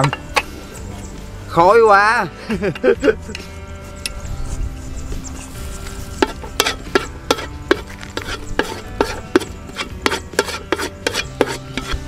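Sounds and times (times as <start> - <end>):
spatula scraping in a pan: 4.6 - 12.0
garlic frying: 5.6 - 11.6.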